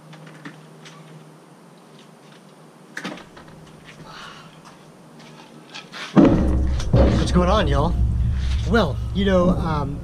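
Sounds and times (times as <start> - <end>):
light footsteps and scuffing: 3.4 - 7.0
faint low hum: 6.2 - 10.0
loud thud: 6.2 - 10.0.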